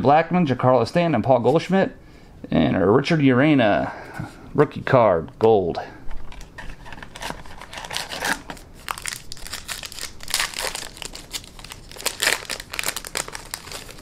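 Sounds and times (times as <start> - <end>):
wrapper crinkling: 6.2 - 14.0.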